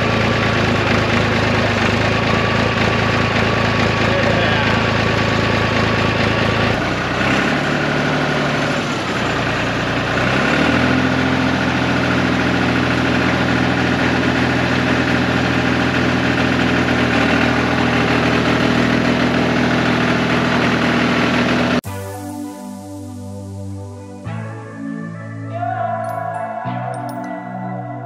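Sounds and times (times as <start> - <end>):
crawler dozer engine running: 0.0 - 21.8.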